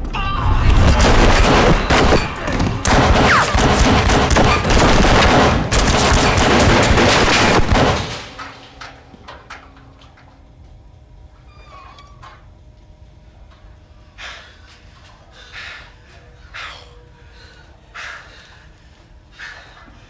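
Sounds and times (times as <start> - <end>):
rapid handgun fire: 0.8 - 8.3.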